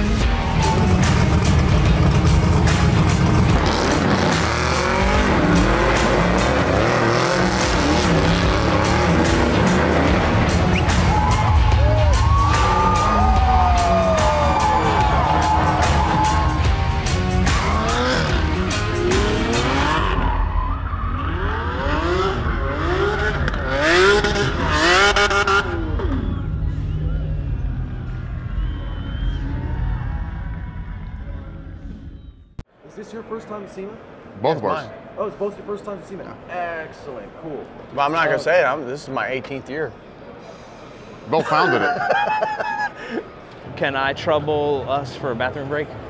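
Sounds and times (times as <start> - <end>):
engine revving: 0.0 - 13.5, 14.1 - 28.0
background music with steady beat: 0.0 - 20.2.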